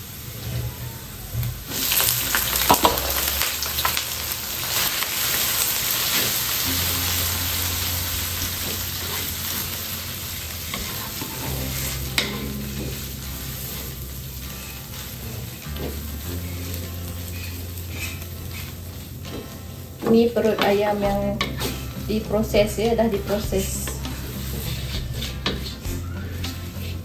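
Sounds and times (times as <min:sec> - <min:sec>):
food sizzling in hot oil: 0:01.6 - 0:27.0
stirring clicks and scrapes: 0:10.6 - 0:22.0, 0:23.6 - 0:27.0.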